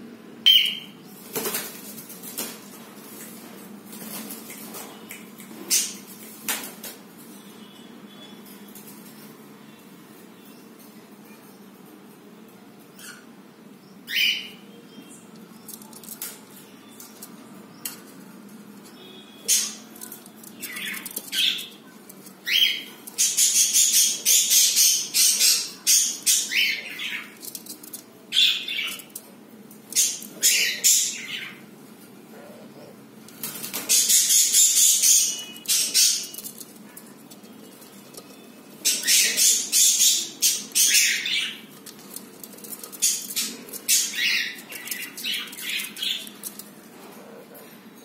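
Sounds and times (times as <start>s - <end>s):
budgerigars chattering and chirping: 33.8s - 36.4s, 38.8s - 42.2s.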